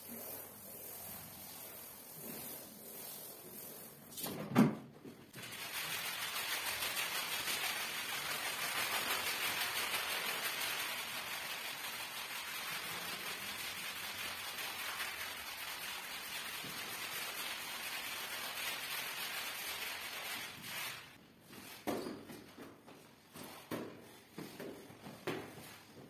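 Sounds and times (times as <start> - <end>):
brush scrubbing wet rug: 0.0 - 4.0, 5.4 - 21.0
squeegee swishing water on tiles: 0.0 - 4.2, 5.3 - 21.8.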